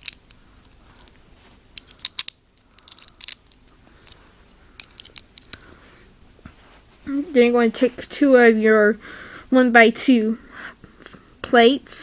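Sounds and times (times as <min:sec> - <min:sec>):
plastic bricks clicking: 0:00.0 - 0:01.1, 0:01.8 - 0:04.2, 0:04.8 - 0:05.6.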